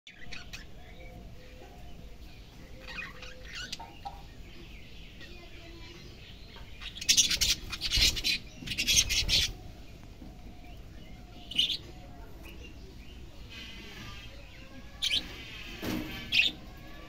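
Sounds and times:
budgerigars chirping: 6.8 - 9.6.

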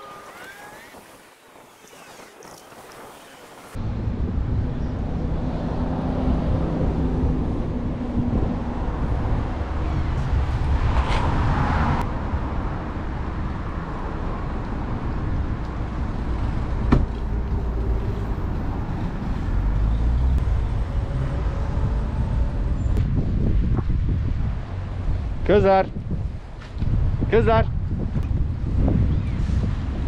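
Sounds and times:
wind on microphone: 0.0 - 13.4, 14.8 - 30.0
road traffic rumble: 3.2 - 30.0.

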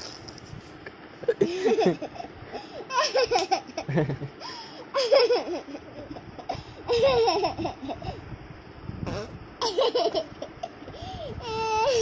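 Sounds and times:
baby laughing: 1.4 - 3.9, 4.9 - 8.2, 9.2 - 12.0.

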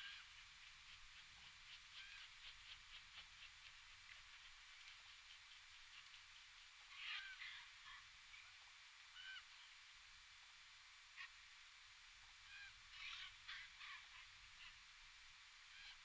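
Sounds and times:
ravens and crows calling: 1.8 - 2.8, 6.9 - 8.0, 12.4 - 14.8.

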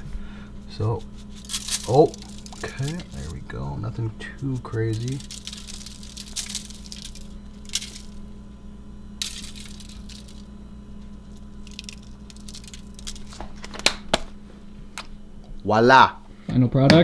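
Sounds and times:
steady low hum: 0.0 - 17.0
cheese shaker being shaken: 1.0 - 3.4, 4.3 - 8.2, 9.2 - 10.5, 11.3 - 13.4
cheese pattering onto foil: 1.2 - 3.4, 4.2 - 8.2, 11.1 - 14.2.

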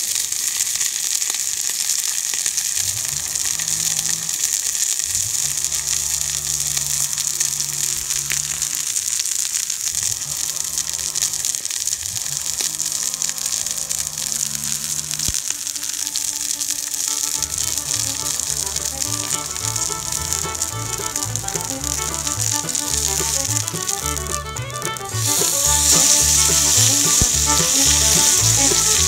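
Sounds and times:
steak sizzling on a griddle: 0.0 - 29.0
background music: 17.1 - 29.0.

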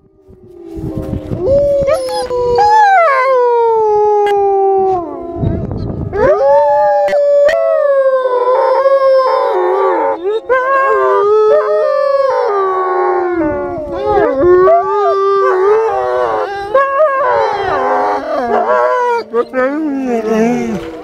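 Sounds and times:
wolves howling in chorus: 0.0 - 21.0
wolves wavering calls: 1.4 - 3.3.

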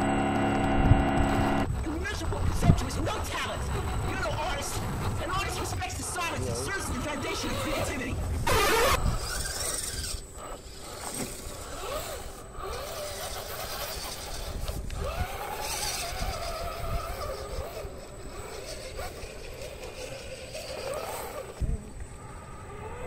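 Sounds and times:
low rumble: 0.0 - 1.7
electric motor whining: 0.0 - 23.0.

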